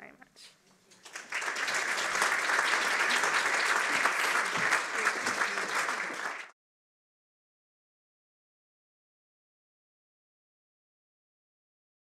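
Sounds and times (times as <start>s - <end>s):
audience applauding: 0.9s - 6.6s.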